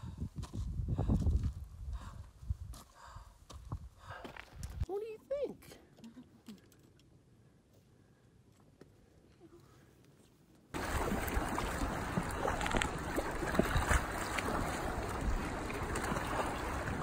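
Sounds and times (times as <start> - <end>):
wind buffeting microphone: 0.0 - 2.8, 10.8 - 17.0.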